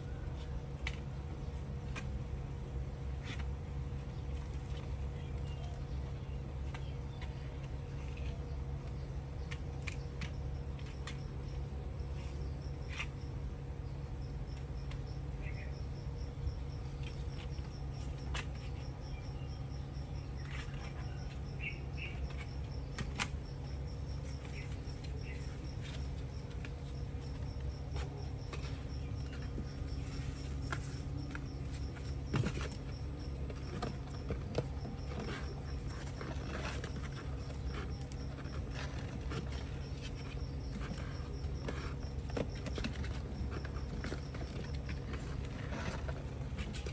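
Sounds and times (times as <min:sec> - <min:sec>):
low background rumble: 0:00.0 - 0:46.9
high insect chirping: 0:10.2 - 0:46.9.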